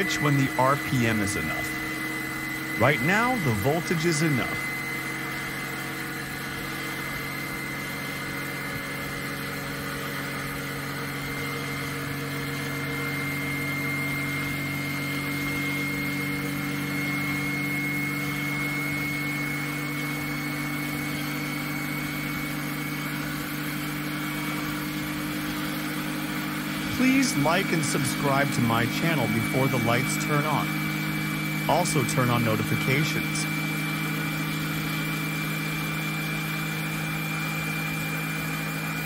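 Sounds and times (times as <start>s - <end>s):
high whine: 0.0s - 36.8s
motor low hum: 0.0s - 39.0s.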